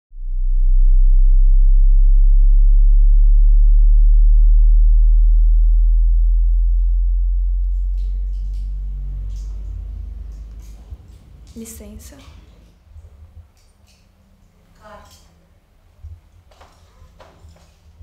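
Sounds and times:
deep bass hum: 0:00.1 - 0:13.9.

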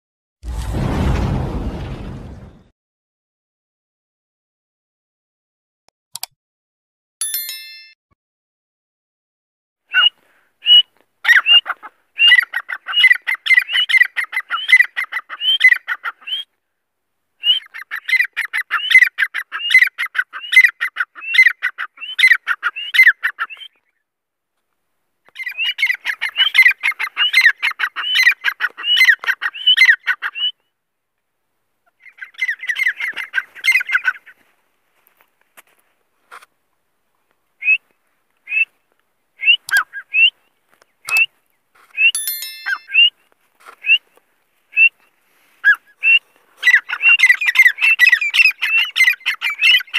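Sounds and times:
bird calling shrill notes: 0:42.0 - 0:44.0.

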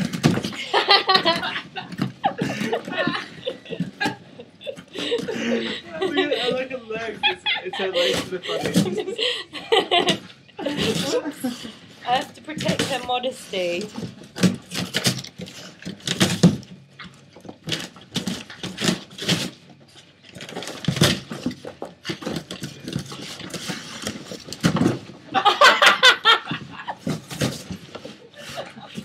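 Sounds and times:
dog tearing cardboard: 0:14.1 - 0:16.7, 0:17.6 - 0:19.6.

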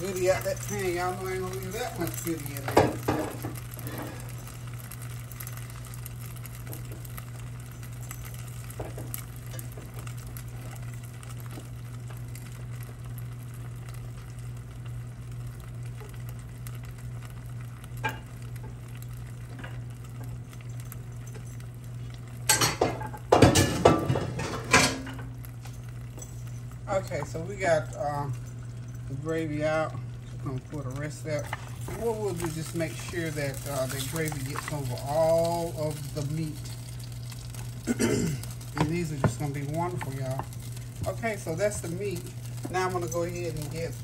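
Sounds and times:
utensil scraping in a pan: 0:00.0 - 0:04.6, 0:29.7 - 0:44.0.

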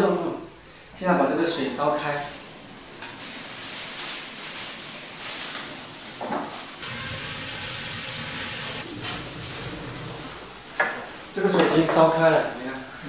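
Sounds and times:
fire crackling and hissing: 0:03.1 - 0:10.8
straw rustling: 0:03.2 - 0:06.9.

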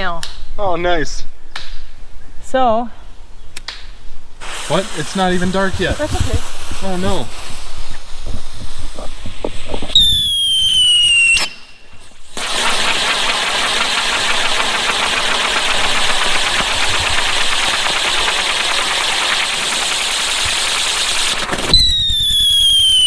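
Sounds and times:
firework crackling: 0:04.4 - 0:23.0
hiss of spraying sparks: 0:04.4 - 0:23.0
falling firework whistle: 0:09.9 - 0:23.0.

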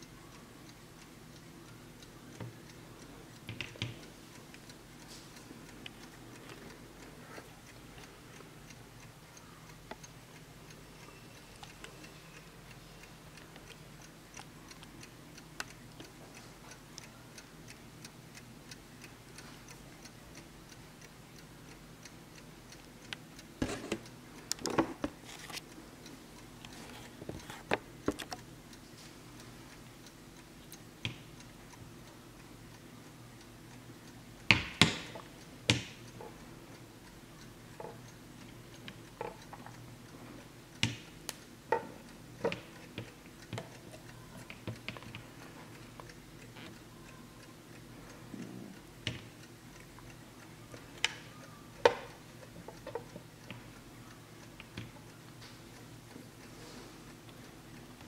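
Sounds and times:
clock ticking: 0:00.0 - 0:58.0.

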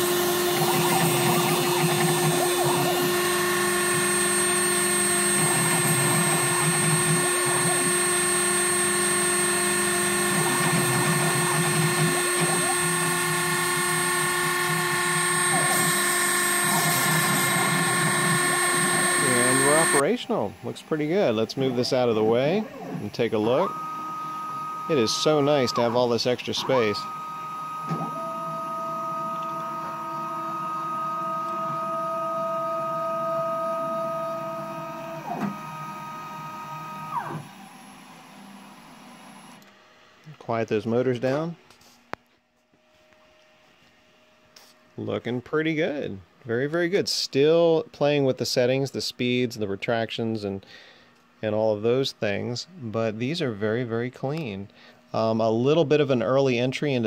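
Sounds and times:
stepper motors humming: 0:00.0 - 0:39.6
rotary tool high whine: 0:00.0 - 0:39.7.

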